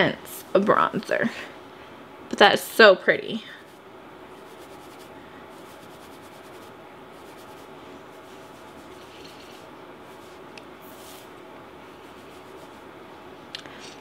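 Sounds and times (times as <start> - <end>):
steady background hiss: 0.0 - 14.0
makeup brush rubbing strokes: 3.6 - 12.9.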